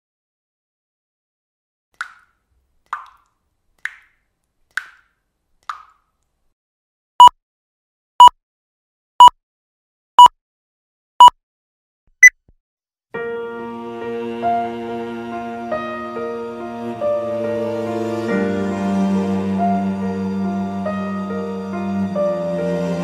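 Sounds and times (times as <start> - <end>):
soft plops: 2.0 - 6.4.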